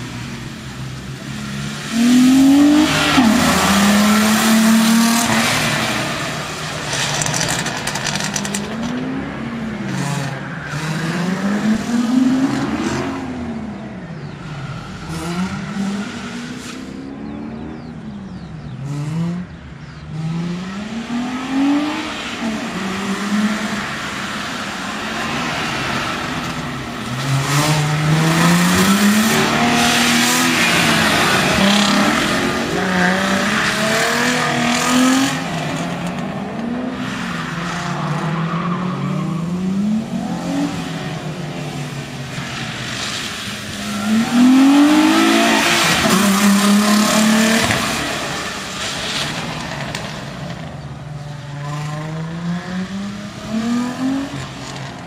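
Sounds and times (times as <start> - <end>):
car engine revving: 0.0 - 55.0
tyres squealing on wet tarmac: 40.5 - 49.9.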